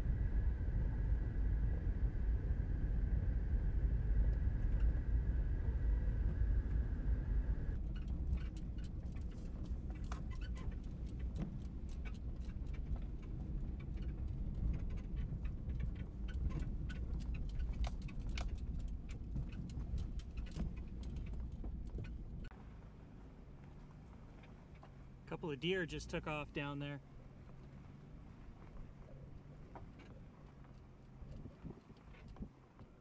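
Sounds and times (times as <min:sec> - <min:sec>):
car engine and road rumble: 0:00.0 - 0:33.0
small clicks and rattles: 0:07.8 - 0:22.5, 0:29.6 - 0:33.0.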